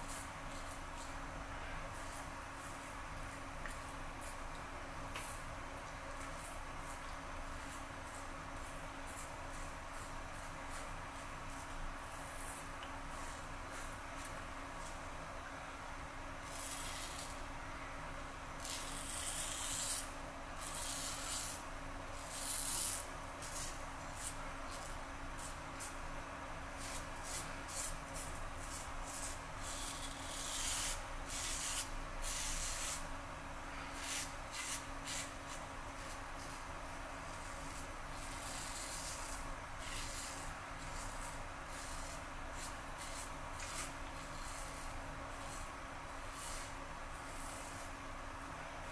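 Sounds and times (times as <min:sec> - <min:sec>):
razor scraping stubble: 0:18.6 - 0:21.6, 0:26.8 - 0:33.0, 0:33.9 - 0:36.6, 0:37.3 - 0:47.9.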